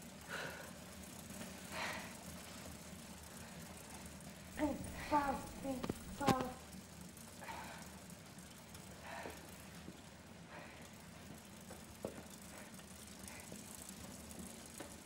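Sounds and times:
faint low hum: 0.0s - 15.0s
soft rustles: 4.6s - 6.6s.

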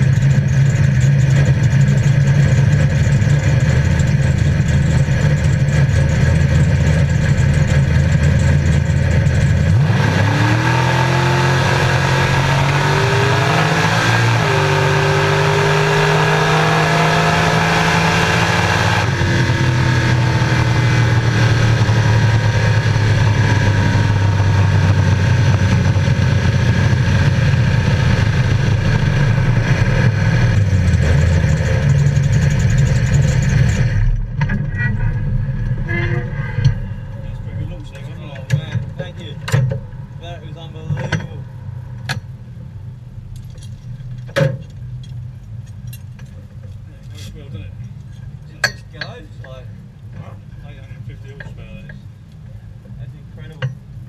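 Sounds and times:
drag car engine revving: 0.0s - 44.3s.

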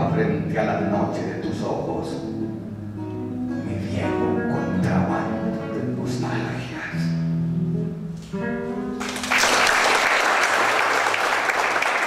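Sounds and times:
audience applause: 9.0s - 12.0s.

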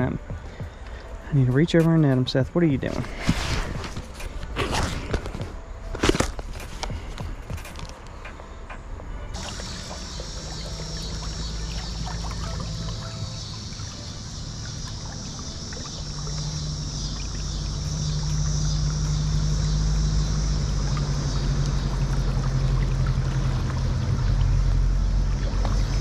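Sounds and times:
river water flowing: 6.8s - 26.0s
low rumble: 9.0s - 26.0s.

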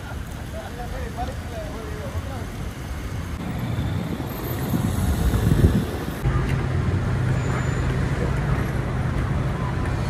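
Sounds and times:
vehicles driving on cobblestones: 0.0s - 10.0s.

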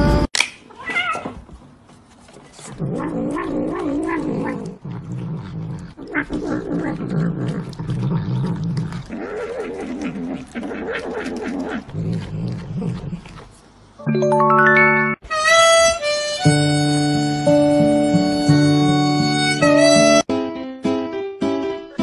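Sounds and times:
cat meowing and yowling: 0.7s - 1.4s.

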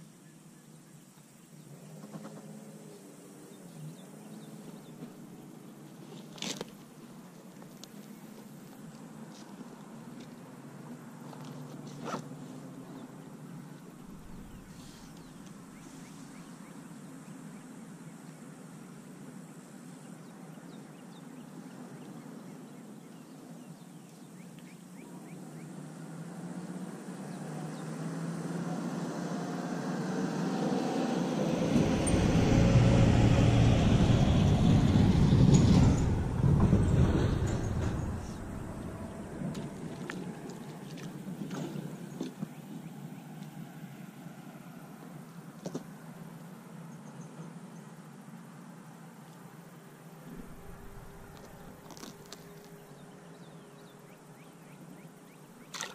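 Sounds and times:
wind buffeting microphone: 31.4s - 41.5s, 50.3s - 52.6s.

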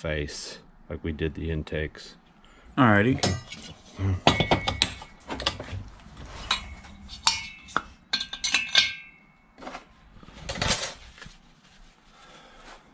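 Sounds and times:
metal clinking: 3.2s - 5.7s, 6.4s - 9.6s
metal knock: 4.2s - 5.6s.

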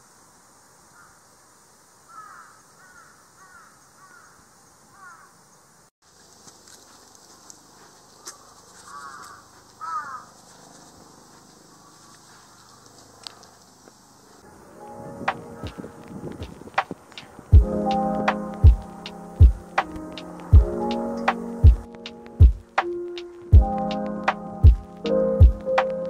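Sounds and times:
crows cawing: 2.1s - 5.4s, 8.2s - 13.6s, 15.3s - 16.4s.

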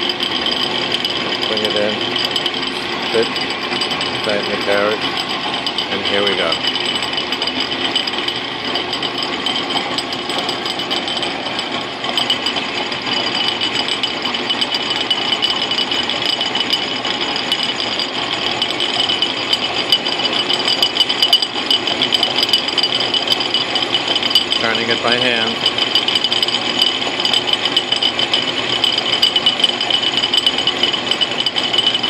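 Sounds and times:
lathe milling with high whine: 0.0s - 32.0s.

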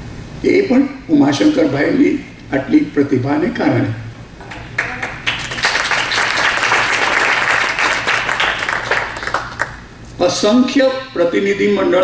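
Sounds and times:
audience applauding: 4.4s - 9.9s.

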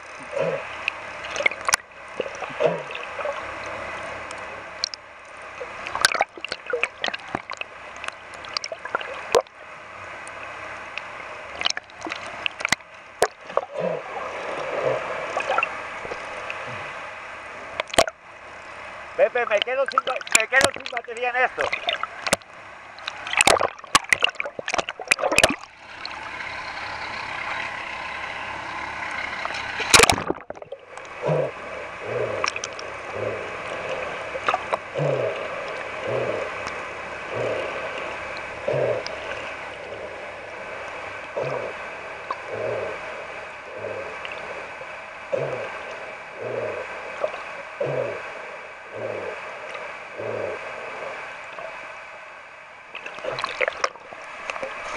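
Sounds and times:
muffled underwater whoosh: 0.0s - 4.9s, 11.6s - 17.2s, 29.4s - 51.9s
water splashes: 0.0s - 54.9s
underwater hiss: 31.2s - 51.7s.

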